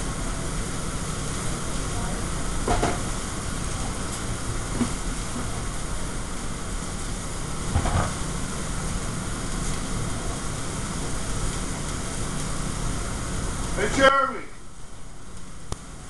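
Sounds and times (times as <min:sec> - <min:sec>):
exhaust hood fan running: 0:00.0 - 0:16.0
food sizzling: 0:00.0 - 0:16.0
kitchen clatter: 0:07.7 - 0:08.2.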